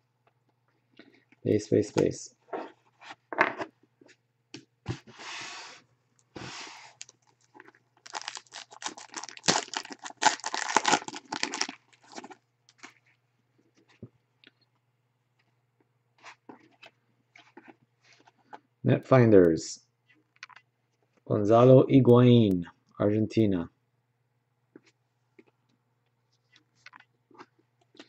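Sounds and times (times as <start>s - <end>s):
foil wrapper tearing and crinkling: 7.0s - 12.9s.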